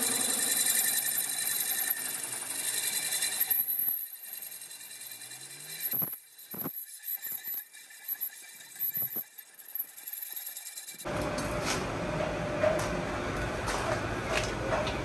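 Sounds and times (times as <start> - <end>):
cutting tool scraping: 0.0 - 11.1
metal lathe whine: 0.0 - 11.1
workshop noise: 0.0 - 15.0.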